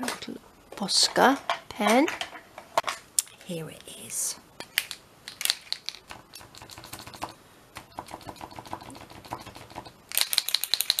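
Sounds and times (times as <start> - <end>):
paint marker ball rattling: 4.8 - 7.3, 8.0 - 11.0.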